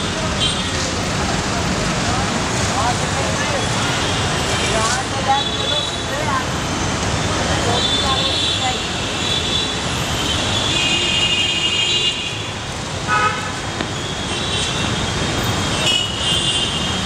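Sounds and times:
road traffic: 0.0 - 17.0
vehicle horns honking: 13.1 - 15.0.

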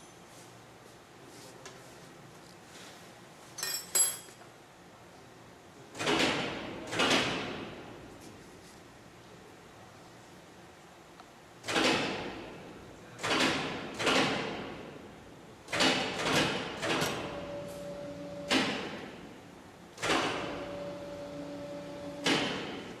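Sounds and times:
steady machine whine: 17.2 - 18.6, 20.4 - 22.4.

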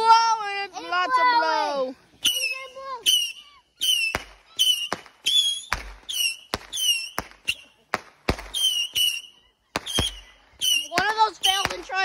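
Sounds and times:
firework whistles and bangs: 2.2 - 11.9.

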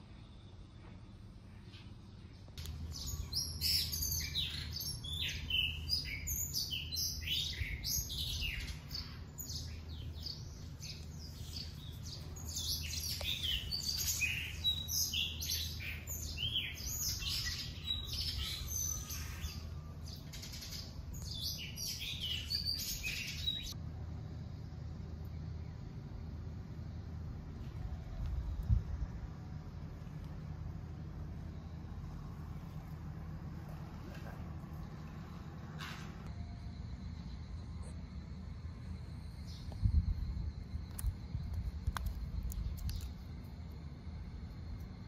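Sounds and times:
small birds chirping: 0.0 - 23.8, 36.7 - 45.0
low steady hum: 0.0 - 45.0.

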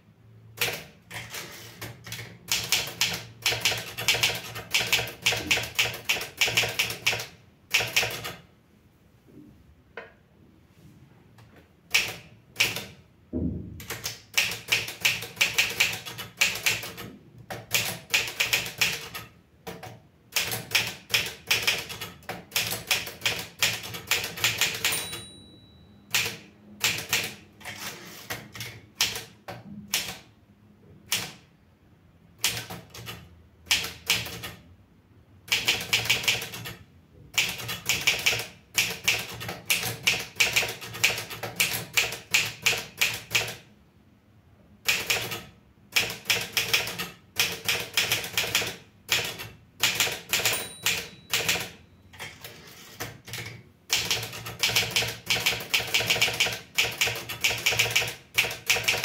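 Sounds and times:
typewriter key strikes: 13.8 - 25.5, 44.9 - 51.8
typewriter margin bell ring: 24.6 - 26.5, 50.3 - 52.2.

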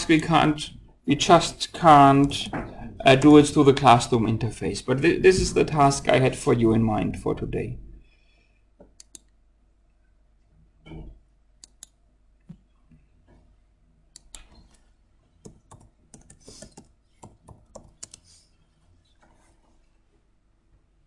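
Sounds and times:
typing on computer keyboard: 15.4 - 18.2.

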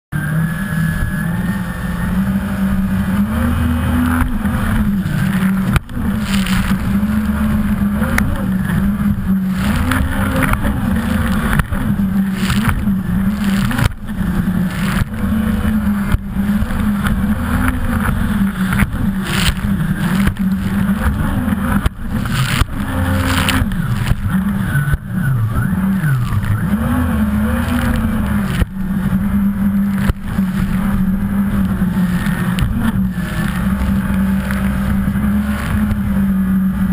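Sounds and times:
jet ski engines running: 0.1 - 36.9
rush of spray and wind: 0.4 - 36.9.

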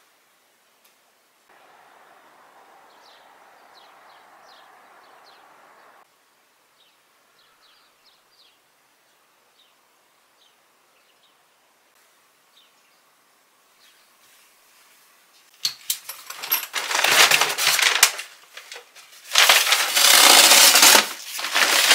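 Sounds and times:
outdoor background hiss: 0.0 - 21.9
small birds chirping: 1.5 - 11.5, 12.5 - 14.5.

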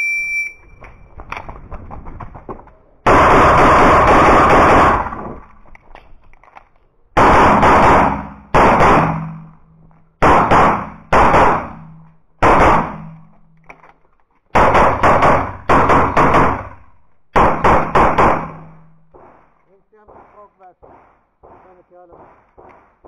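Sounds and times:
pistol shots: 7.2 - 9.6, 10.2 - 13.3, 14.6 - 23.0.

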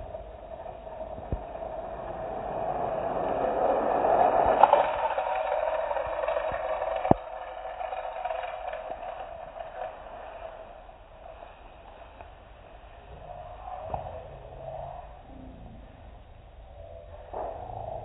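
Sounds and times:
toy car rolling whir: 0.6 - 11.5.

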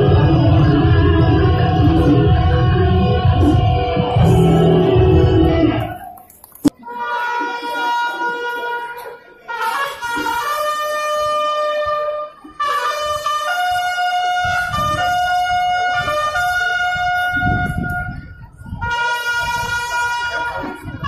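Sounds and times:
low rumble: 0.0 - 6.2
wind instruments slow melody: 0.0 - 21.0.

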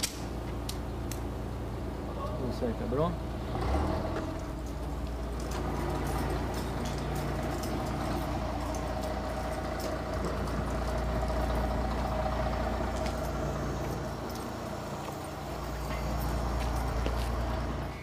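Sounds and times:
low vehicle engine rumble: 0.0 - 18.0.

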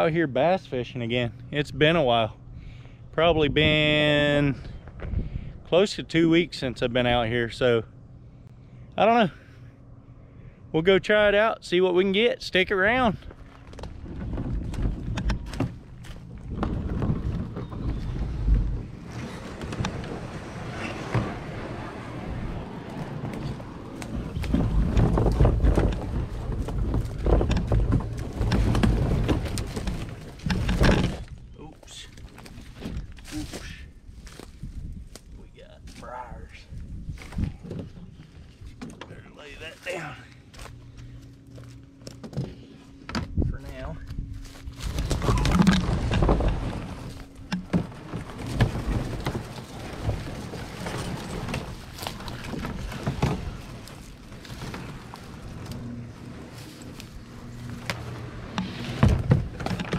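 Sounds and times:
plastic kayak dragged over dirt: 12.9 - 31.5, 44.4 - 59.9
knocks and crackles: 13.3 - 31.5, 44.0 - 59.9.

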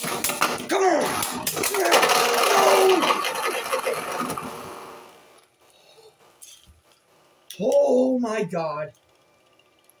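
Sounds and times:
spinning tops rattling in plastic stadium: 0.0 - 4.5.

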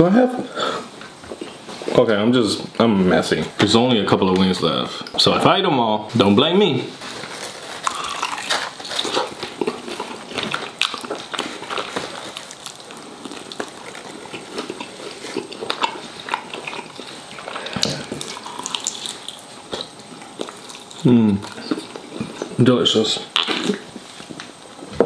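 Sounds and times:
man chewing and lip-smacking: 7.8 - 22.6.

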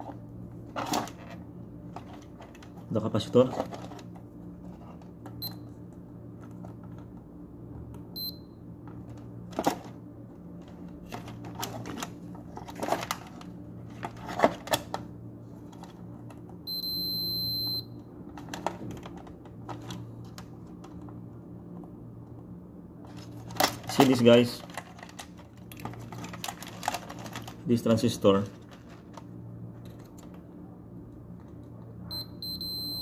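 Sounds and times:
multimeter beeping: 5.4 - 5.7, 8.2 - 8.6, 16.7 - 17.9, 32.1 - 33.0.

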